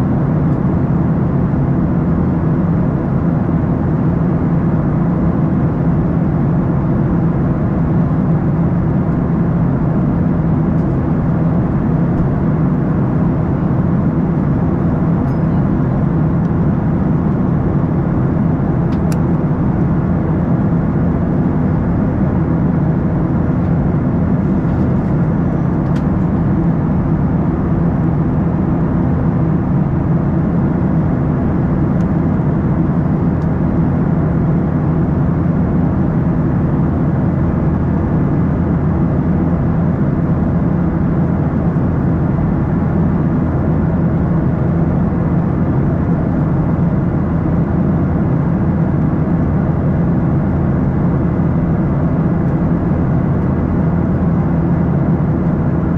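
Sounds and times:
jet engine drone: 0.0s - 55.9s.

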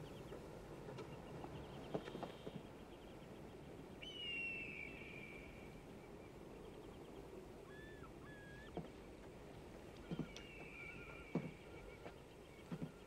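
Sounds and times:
whistled bird calls: 4.0s - 8.9s, 10.0s - 13.0s.

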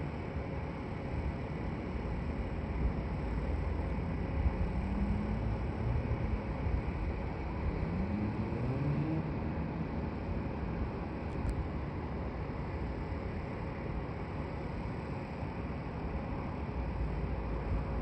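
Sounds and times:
road traffic rumble: 0.0s - 18.0s
vehicle engine rising in pitch: 7.6s - 10.3s.

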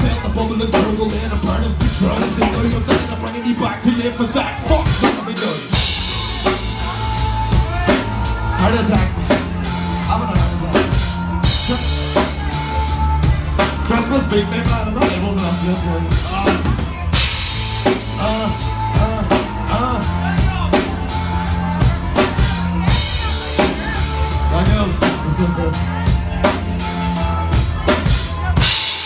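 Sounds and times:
person singing into microphone: 0.0s - 16.8s
low bass line: 0.0s - 29.0s.

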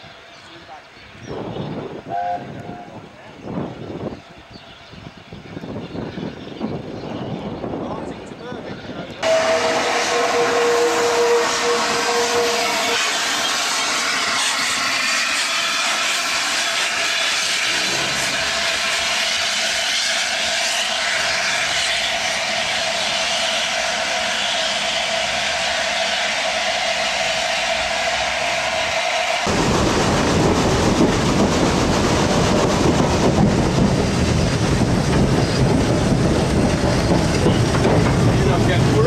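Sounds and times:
steam locomotive hissing: 9.2s - 39.0s.

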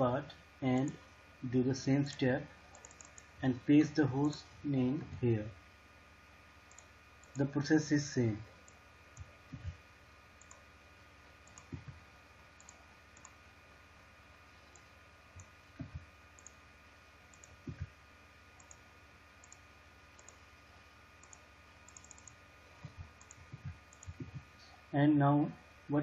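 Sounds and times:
faint hum: 0.0s - 26.0s
computer mouse clicks: 2.0s - 3.3s, 6.7s - 7.5s, 8.6s - 9.7s, 10.4s - 10.6s, 11.4s - 12.0s, 12.6s - 13.4s, 14.6s - 16.6s, 17.3s - 17.9s, 18.6s - 18.8s, 19.4s - 19.6s, 20.2s - 20.4s, 21.2s - 24.8s
soft low thumps: 9.2s - 9.8s, 11.7s - 12.0s, 15.4s - 16.2s, 17.6s - 18.0s, 22.8s - 24.6s.

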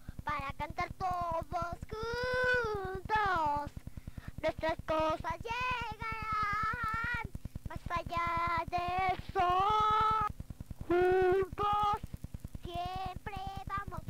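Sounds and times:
rapid low pulse: 0.0s - 14.0s
child singing: 0.2s - 3.8s, 4.4s - 10.3s, 10.9s - 12.0s, 12.6s - 14.0s.

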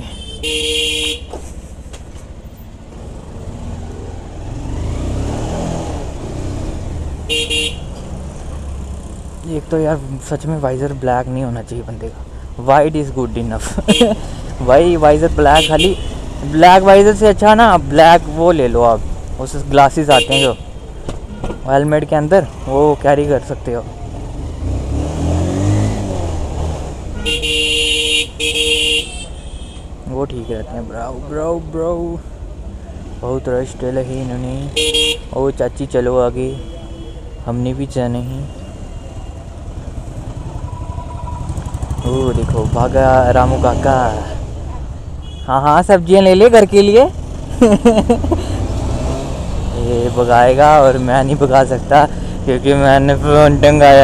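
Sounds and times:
motorcycle horn honking: 0.0s - 1.4s, 7.3s - 8.0s, 13.9s - 14.2s, 15.5s - 16.2s, 20.1s - 21.6s, 27.1s - 29.9s, 34.7s - 35.3s, 40.6s - 42.6s, 45.2s - 45.5s
motorcycle engine and road rumble: 0.0s - 54.0s
motorcycle engine accelerating: 3.0s - 7.2s, 39.6s - 44.1s, 47.1s - 51.3s.

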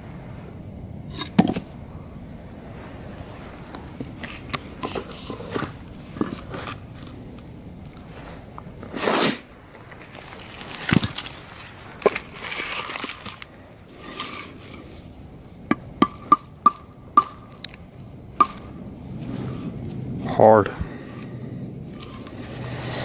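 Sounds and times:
branches rustling and knocking: 3.5s - 8.9s, 9.7s - 20.0s.

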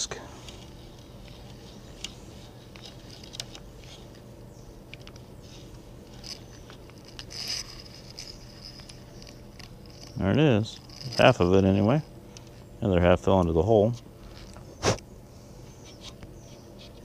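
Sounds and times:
bit lifting out with rustle: 0.4s - 12.6s.

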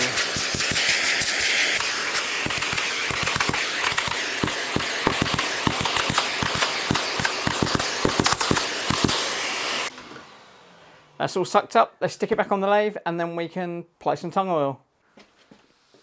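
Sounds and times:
debris clicking in hose: 0.0s - 9.2s
vacuum suction with high whine: 0.0s - 11.5s.

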